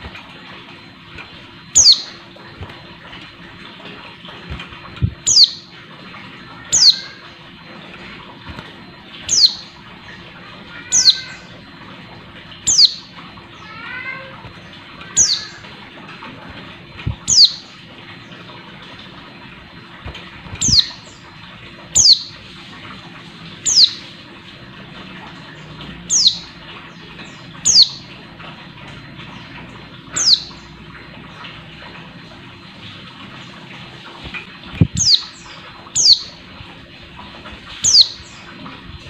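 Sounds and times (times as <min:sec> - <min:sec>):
bird giving high descending calls: 0:01.8 - 0:02.1, 0:09.3 - 0:09.6, 0:10.7 - 0:11.5, 0:12.7 - 0:13.0, 0:15.1 - 0:15.6.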